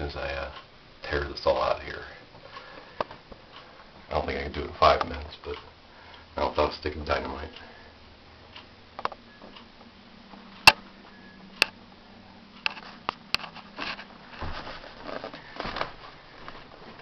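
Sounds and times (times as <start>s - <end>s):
low steady hum: 0.0s - 17.0s
sharp clicks and knocks: 8.5s - 10.8s
soft rustling and shuffling: 9.3s - 17.0s.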